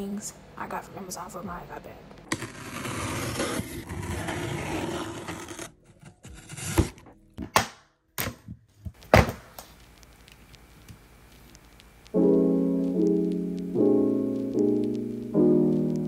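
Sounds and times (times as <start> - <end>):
piano music: 12.1 - 16.0.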